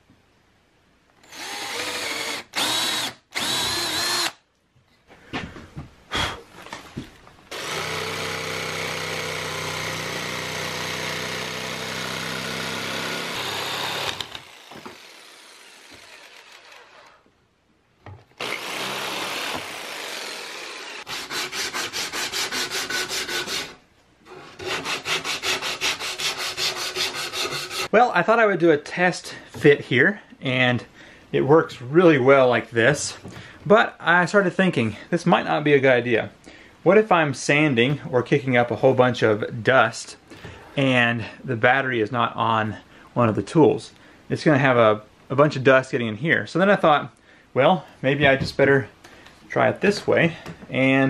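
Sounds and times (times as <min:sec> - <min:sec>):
drill boring through plywood: 0:01.2 - 0:04.4, 0:07.5 - 0:17.2, 0:18.4 - 0:23.8
jigsaw cutting plywood: 0:01.2 - 0:04.4, 0:07.5 - 0:17.2, 0:18.4 - 0:23.8, 0:24.5 - 0:27.9
sandpaper rubbing wood: 0:21.1 - 0:27.9.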